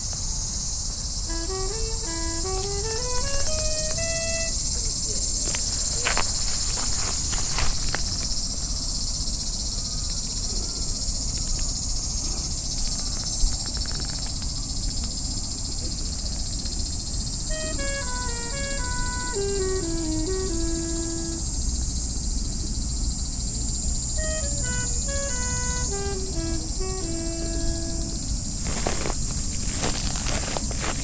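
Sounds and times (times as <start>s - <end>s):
high-pitched insect chorus: 0.0s - 31.0s
short melody of stepping notes: 1.3s - 4.6s, 17.5s - 21.4s, 24.2s - 28.2s.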